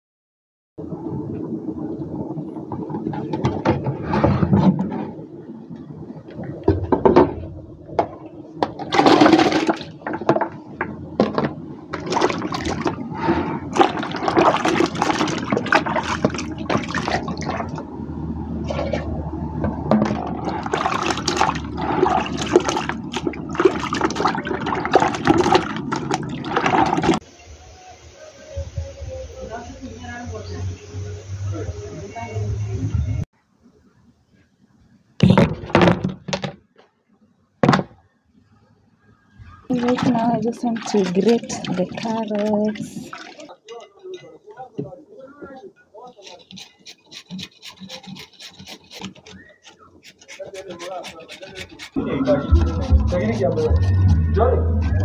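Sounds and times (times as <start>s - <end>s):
hands splashing vegetables in water: 11.9s - 13.0s, 13.7s - 17.8s, 20.2s - 27.2s, 39.7s - 43.6s
water running off: 11.9s - 17.9s, 20.0s - 27.2s, 39.7s - 44.0s.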